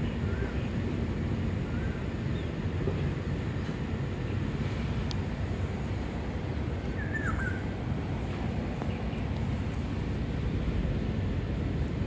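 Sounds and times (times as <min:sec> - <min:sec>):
low city background rumble: 0:00.0 - 0:12.0
high bird chirp: 0:06.9 - 0:07.7.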